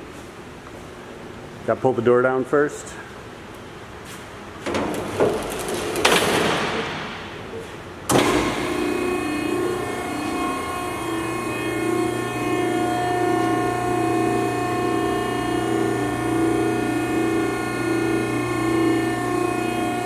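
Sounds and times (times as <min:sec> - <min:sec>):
hydraulic power unit humming: 0:04.4 - 0:20.0.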